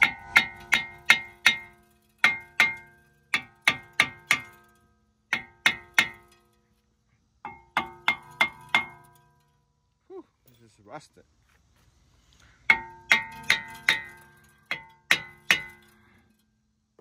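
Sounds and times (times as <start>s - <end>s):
hammer clanging on metal: 0.0s - 6.5s, 7.5s - 9.3s, 12.7s - 16.1s.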